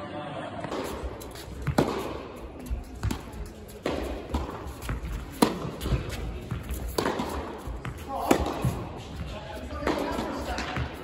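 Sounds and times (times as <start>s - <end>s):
racket hitting tennis ball: 0.6s - 11.0s
tennis ball bouncing: 0.6s - 11.0s.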